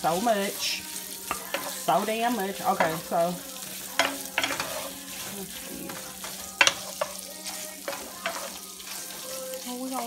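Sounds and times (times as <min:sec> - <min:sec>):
sausage sizzling in a frying pan: 0:00.0 - 0:10.0
wooden spoon clacking against pan: 0:01.3 - 0:03.2, 0:03.8 - 0:09.2.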